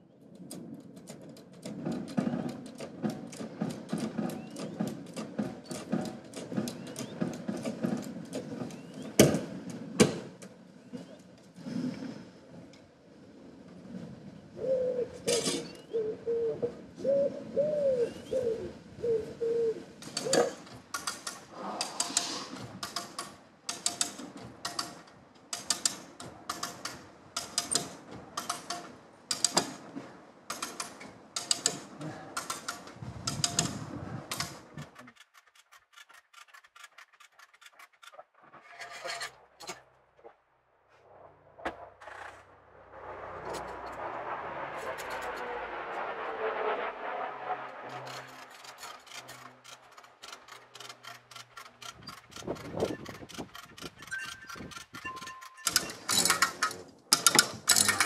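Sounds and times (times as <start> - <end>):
dove cooing: 14.6 - 20.6
ratchet strap clicking: 48.7 - 58.0.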